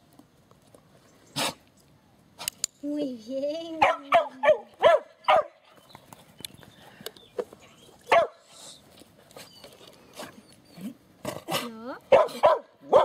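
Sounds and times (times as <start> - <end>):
dog barking: 3.8 - 5.6, 8.1 - 8.4, 12.1 - 13.0.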